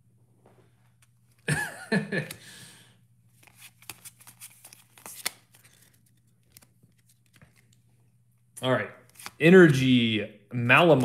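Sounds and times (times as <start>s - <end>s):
cards clicking and rustling: 3.3s - 8.0s, 9.0s - 9.9s.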